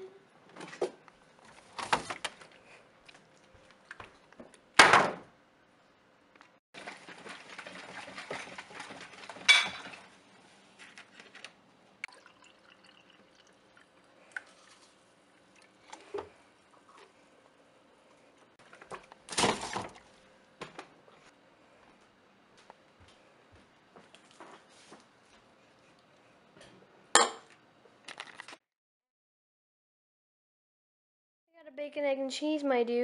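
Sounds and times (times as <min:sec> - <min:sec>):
kitchen knocks and thuds: 0:04.8 - 0:05.3.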